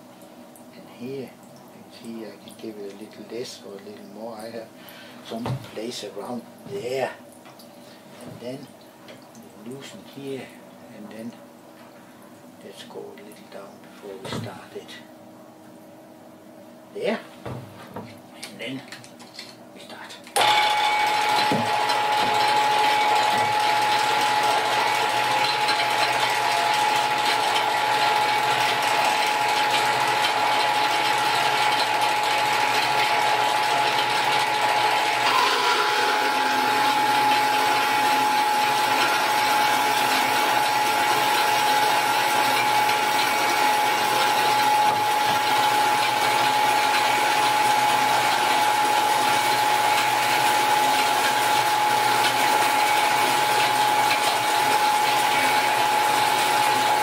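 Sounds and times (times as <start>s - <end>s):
band saw cutting metal: 20.4s - 57.0s.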